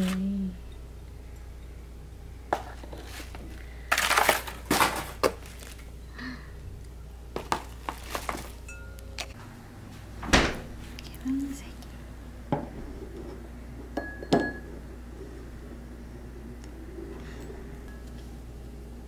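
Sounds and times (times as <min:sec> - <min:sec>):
bubble wrap crinkling: 0:02.9 - 0:05.9, 0:07.4 - 0:08.7
light knocks of glass bowls: 0:14.0 - 0:14.7.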